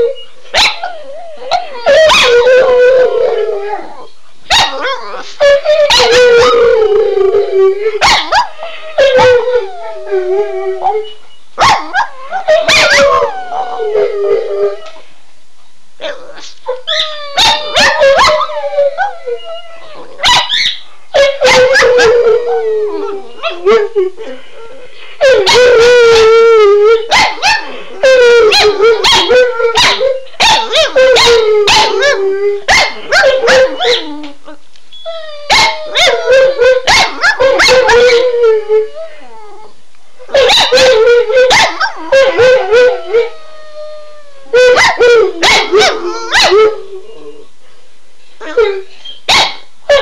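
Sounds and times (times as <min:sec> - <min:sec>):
dog howling: 0:00.8 - 0:11.2.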